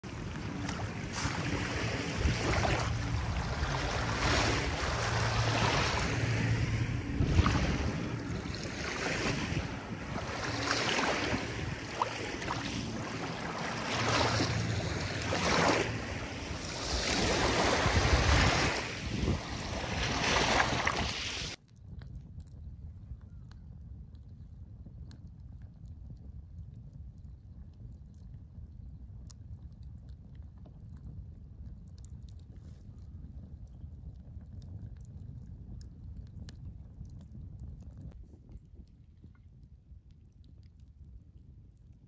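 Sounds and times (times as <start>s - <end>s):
waves lapping on gravel shore: 0.0s - 21.6s
wind buffeting microphone: 0.0s - 41.9s.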